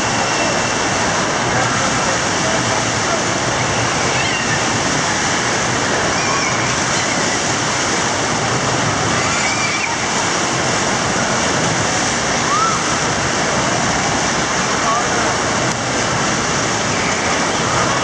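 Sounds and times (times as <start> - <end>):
waves churning in a pool: 0.0 - 18.0
children shouting: 4.0 - 4.8, 6.0 - 7.6, 9.0 - 10.3.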